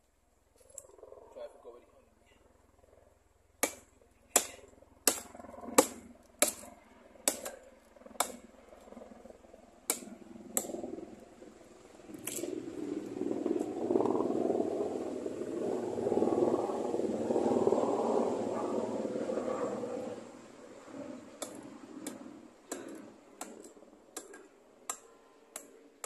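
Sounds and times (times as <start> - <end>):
machete chopping into tree trunk: 3.6 - 7.6.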